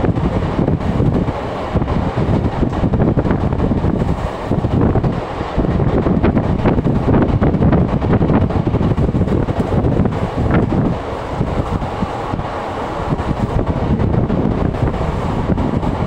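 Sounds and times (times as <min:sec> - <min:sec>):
train running noise: 0:00.0 - 0:16.0
wind buffeting the microphone: 0:00.0 - 0:16.0.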